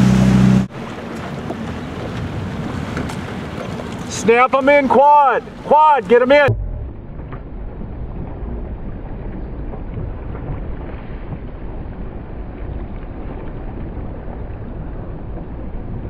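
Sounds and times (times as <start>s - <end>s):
water noise: 0.0s - 16.0s
wind buffeting microphone: 1.3s - 4.2s.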